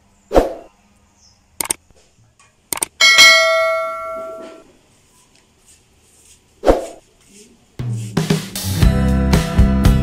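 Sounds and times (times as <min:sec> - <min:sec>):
mouse clicks: 0:01.6 - 0:01.8
bell ding: 0:03.0 - 0:04.6.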